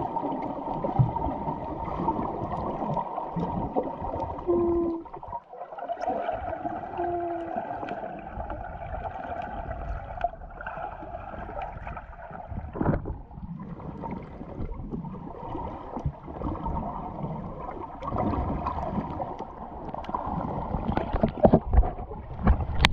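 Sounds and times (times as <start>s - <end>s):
muffled underwater gurgling: 0.0s - 22.9s.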